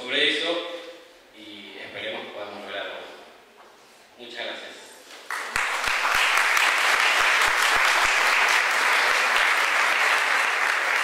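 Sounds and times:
audience applauding: 5.3 - 11.0.

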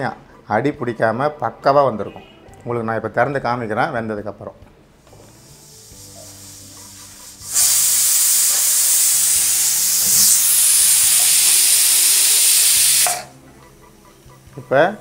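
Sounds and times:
pressure cooker whistling hiss: 5.4 - 13.4.

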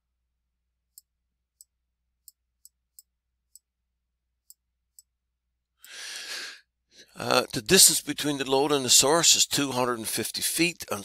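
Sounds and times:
person breathing: 5.8 - 7.2.

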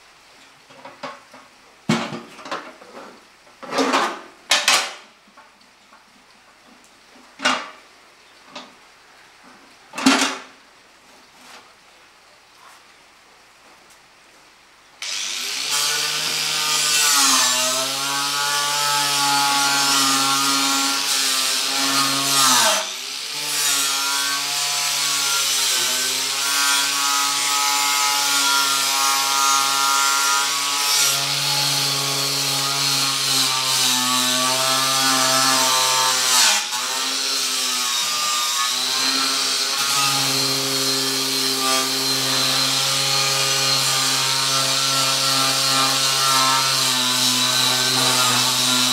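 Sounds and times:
angle grinder on steel: 15.0 - 48.9.

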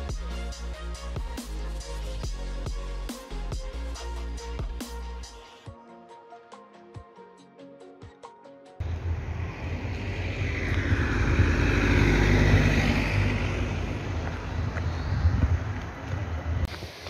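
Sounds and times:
music: 0.0 - 8.8
motor vehicle running: 8.8 - 16.7.

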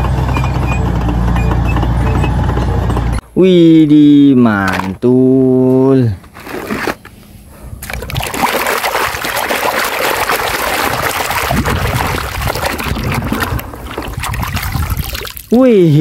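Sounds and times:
water splashing in plastic basin: 7.8 - 15.6.

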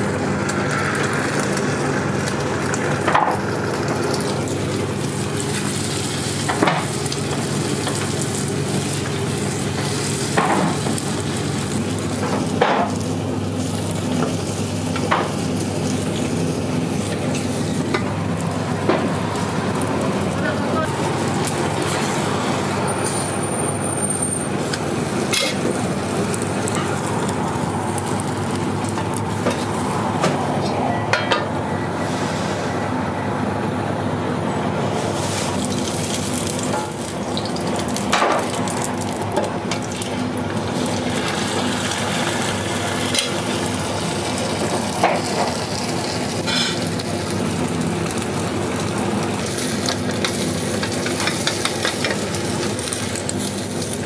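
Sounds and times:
egg batter sizzling in a pan: 0.0 - 30.2, 35.1 - 54.0
utensils tapping against pan: 50.2 - 52.2.

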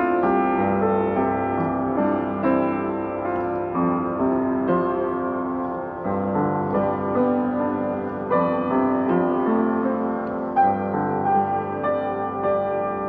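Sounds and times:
slow piano notes and chords: 0.0 - 13.0.

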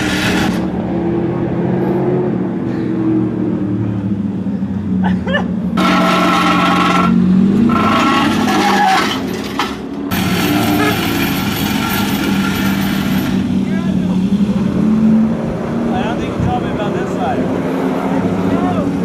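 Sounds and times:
loud screeching: 5.8 - 9.4.

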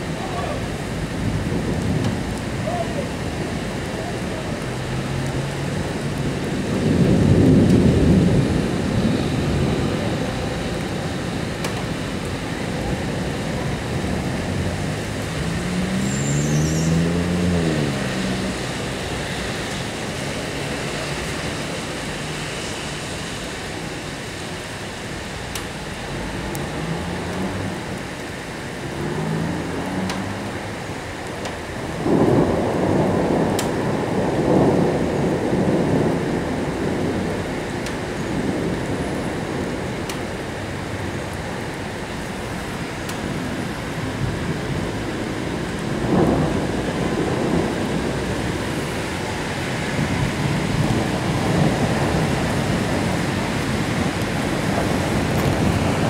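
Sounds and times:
low rumble of thunder: 0.0 - 16.0, 28.8 - 56.0
steady rain: 0.0 - 56.0.

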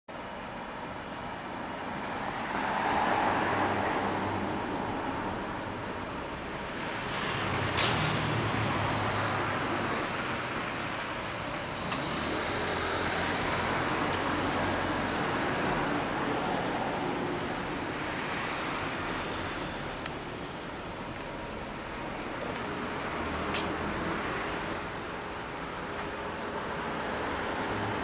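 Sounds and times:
road traffic noise: 0.1 - 28.0.

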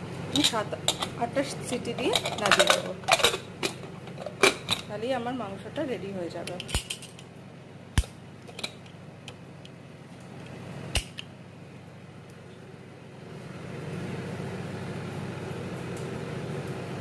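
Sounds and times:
steady low hum: 0.0 - 17.0
sharp metal click of lid: 11.0 - 11.3.

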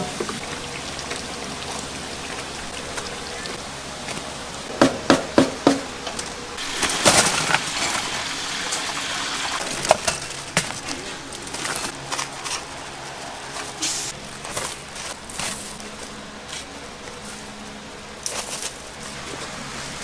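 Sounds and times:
water gushing: 0.0 - 4.7, 6.6 - 10.0, 19.0 - 20.0
sharp knocks: 4.7 - 5.9.

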